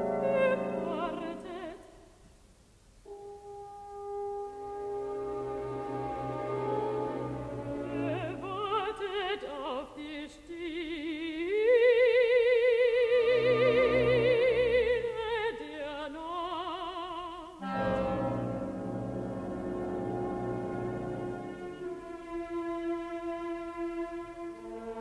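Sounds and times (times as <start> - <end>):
woman singing with vibrato: 0.0 - 2.1, 7.8 - 18.0
orchestral chords: 3.1 - 8.7, 17.6 - 25.0.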